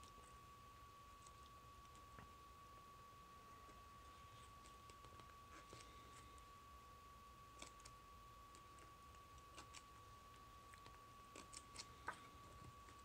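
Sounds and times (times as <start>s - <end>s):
faint steady whine: 0.0s - 13.0s.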